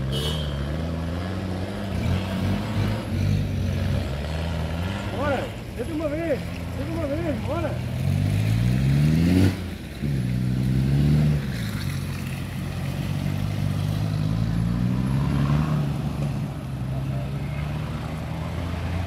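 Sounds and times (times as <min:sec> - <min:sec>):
off-road engine revving: 0:00.0 - 0:19.0.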